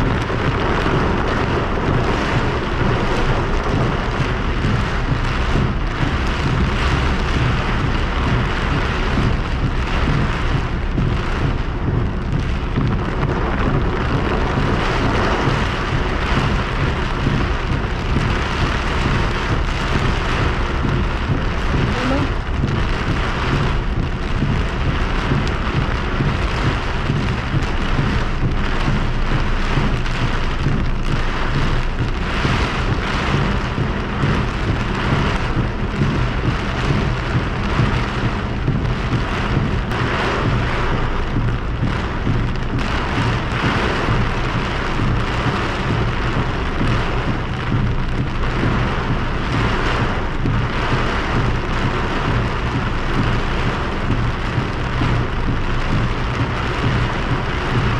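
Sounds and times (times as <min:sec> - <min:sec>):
heavy rain on car roof: 0:00.0 - 0:57.9
low hum of moving car: 0:00.0 - 0:57.9.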